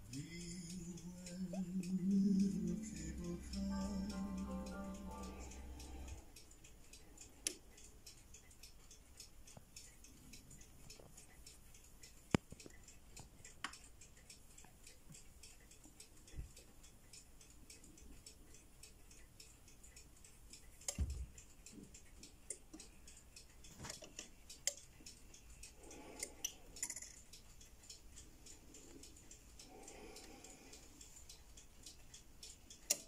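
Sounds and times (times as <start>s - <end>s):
fast even ticking: 0.0s - 10.1s.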